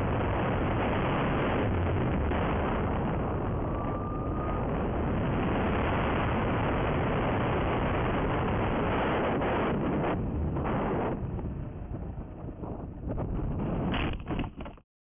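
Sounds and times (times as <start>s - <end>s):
wind rushing over microphone: 0.0s - 14.8s.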